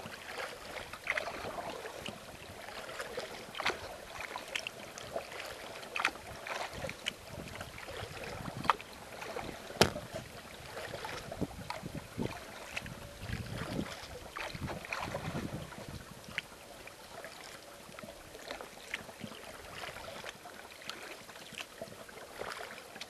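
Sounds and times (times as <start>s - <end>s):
paddle splashing water: 0.0s - 23.0s
sharp knock: 9.8s - 10.0s.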